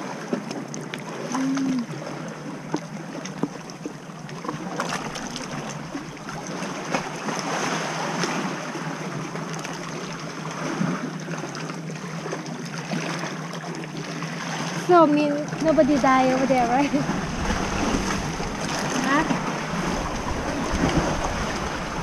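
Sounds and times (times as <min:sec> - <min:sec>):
waves lapping on rocky shore: 0:00.0 - 0:22.0
woman humming: 0:01.3 - 0:01.9.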